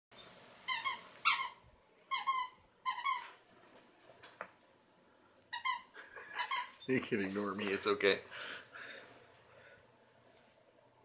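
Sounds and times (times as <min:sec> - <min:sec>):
squeaky dog toy squeaking: 0:00.6 - 0:03.4, 0:05.5 - 0:06.9.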